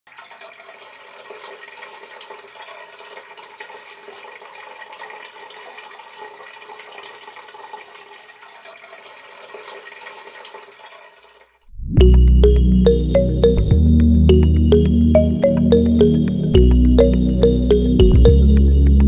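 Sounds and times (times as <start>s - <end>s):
water trickling into basin: 0.1s - 11.5s.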